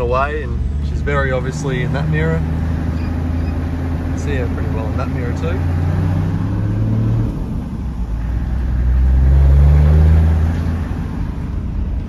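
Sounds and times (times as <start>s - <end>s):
car engine pulling under load: 0.0s - 12.0s
road noise: 0.0s - 12.0s.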